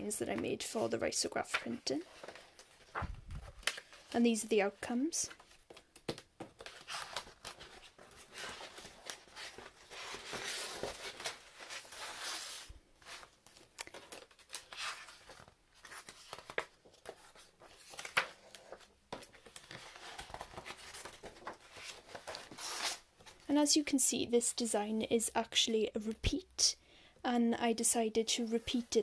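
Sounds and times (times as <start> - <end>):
paper sheets rustling: 1.4 - 4.2, 6.5 - 23.4.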